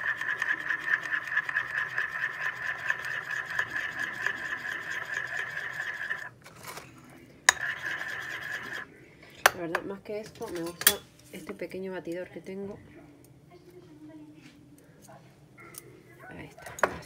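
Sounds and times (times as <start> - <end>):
spoon scraping ceramic bowl: 0.0 - 6.8, 7.5 - 8.9.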